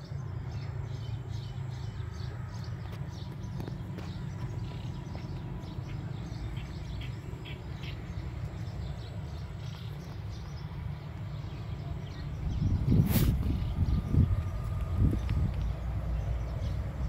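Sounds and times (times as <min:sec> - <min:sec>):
small birds chirping: 0:00.0 - 0:17.0
low rumble: 0:10.3 - 0:17.0.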